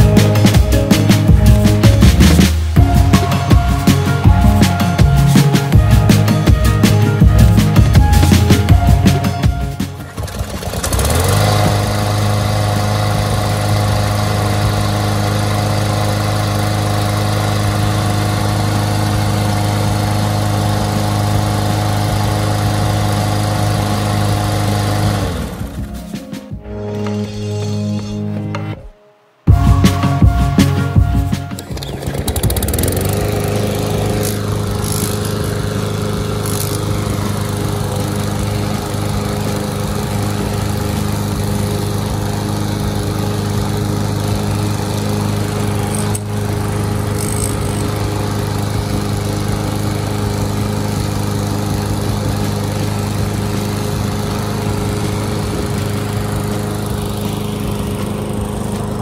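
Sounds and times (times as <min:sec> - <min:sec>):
lawn mower engine running: 0:00.0 - 0:28.2, 0:29.5 - 0:59.0.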